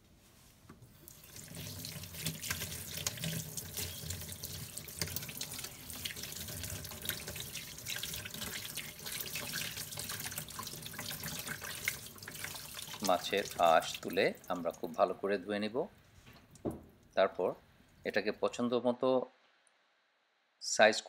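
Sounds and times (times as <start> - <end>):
hands rinsing fish with splashes: 1.0 - 15.0
tap water running into sink: 1.0 - 15.0.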